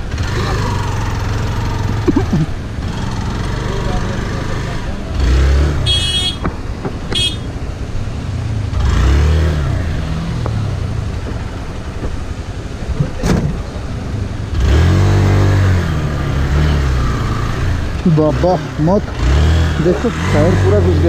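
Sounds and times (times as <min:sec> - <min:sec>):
motorcycle engine revving: 0:00.0 - 0:12.0, 0:14.4 - 0:21.0
short high-pitched tones: 0:02.0 - 0:02.5.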